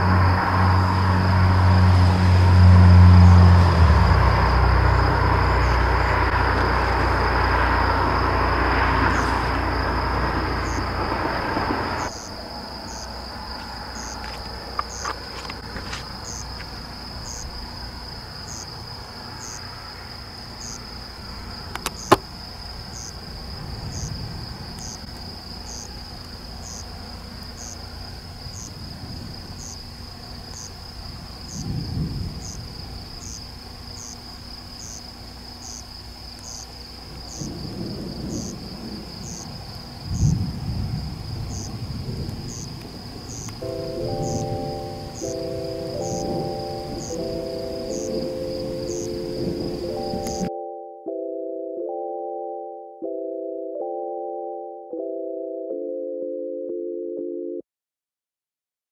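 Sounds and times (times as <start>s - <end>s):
loud rushing noise: 0.0s - 12.7s
distant thunder rumbling: 0.0s - 34.5s, 36.8s - 50.5s
night insects trilling and chirping: 0.0s - 50.5s
sharp click: 21.8s - 22.2s.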